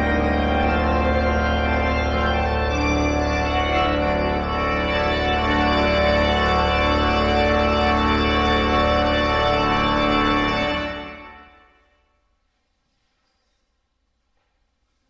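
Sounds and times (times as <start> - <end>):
church organ chords: 0.0 - 11.9.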